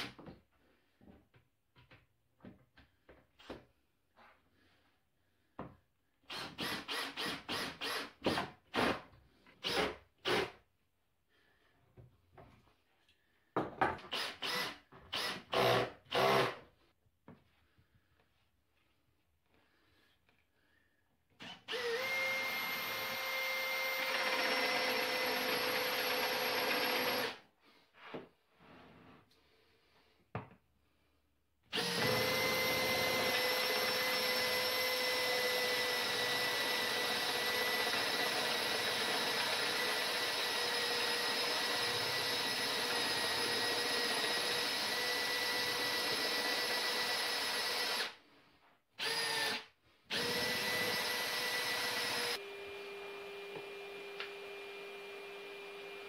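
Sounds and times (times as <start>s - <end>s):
cordless drill boring into wood: 6.3s - 9.0s, 9.6s - 10.6s, 14.1s - 16.6s, 21.4s - 27.4s, 31.7s - 48.2s, 49.0s - 56.0s.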